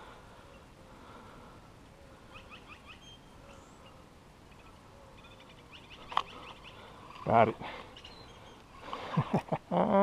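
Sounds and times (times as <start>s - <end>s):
bird chirping: 2.3s - 9.0s.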